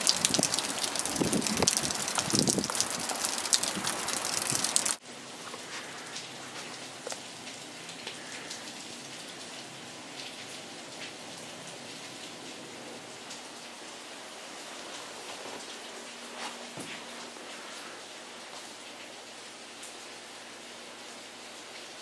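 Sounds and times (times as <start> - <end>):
heavy rain on asphalt: 0.0 - 22.0.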